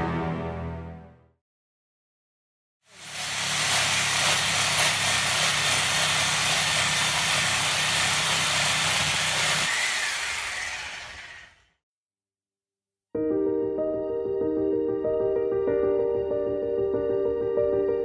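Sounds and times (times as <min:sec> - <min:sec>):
power cutter grinding wall: 0:02.9 - 0:11.7.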